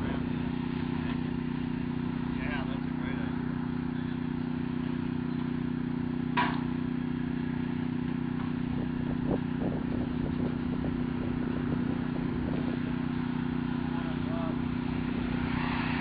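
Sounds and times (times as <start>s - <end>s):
forklift engine idling: 0.0s - 15.4s.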